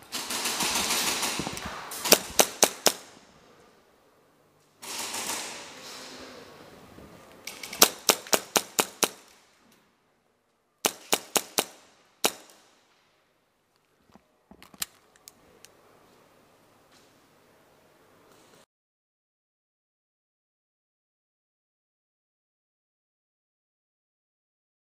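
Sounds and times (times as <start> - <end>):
airsoft pistol shots: 0.2 - 3.1, 7.7 - 9.2, 10.8 - 12.6.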